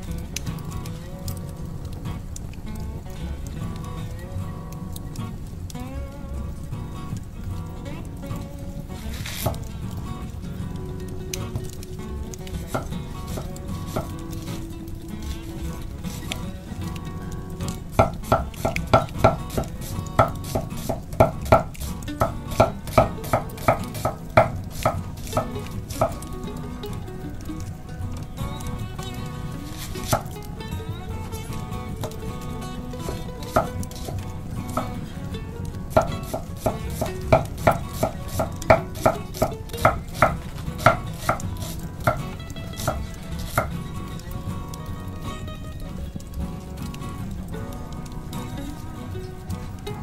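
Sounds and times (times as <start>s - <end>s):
knife chopping on wooden board: 36.3s - 39.5s.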